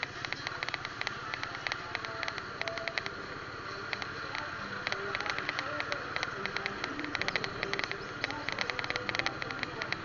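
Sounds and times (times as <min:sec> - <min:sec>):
crackling clicks: 0:00.0 - 0:03.2, 0:03.9 - 0:10.0
vehicle engine running: 0:00.0 - 0:10.0.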